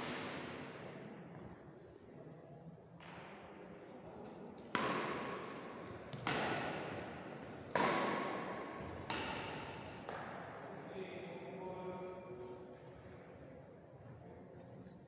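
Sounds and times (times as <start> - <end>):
racket hitting shuttlecock: 0.0 - 0.8, 4.6 - 10.5.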